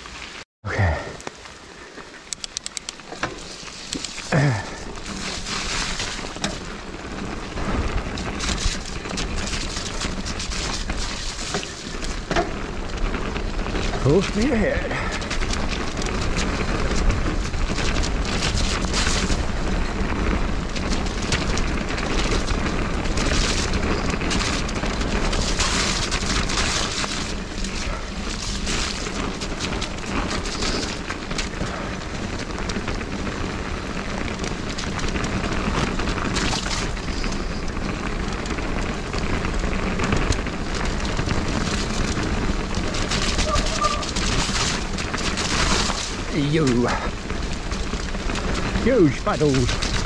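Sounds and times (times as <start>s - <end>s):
tyres rolling on dirt: 0.0s - 50.0s
bike rattling and clicking: 2.0s - 50.0s.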